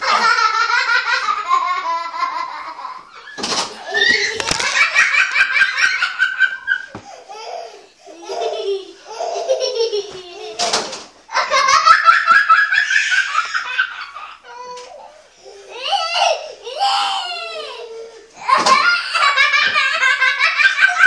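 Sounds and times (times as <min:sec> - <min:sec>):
high-pitched laughter: 0:00.0 - 0:07.4.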